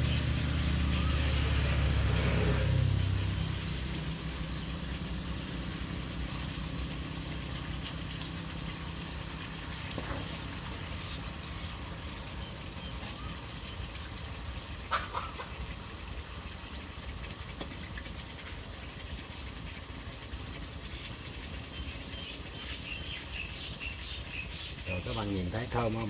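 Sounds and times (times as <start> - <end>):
low engine hum: 0.0 - 14.6
meat sizzling in hot oil: 0.0 - 26.0
oil spatter crackles: 0.0 - 26.0.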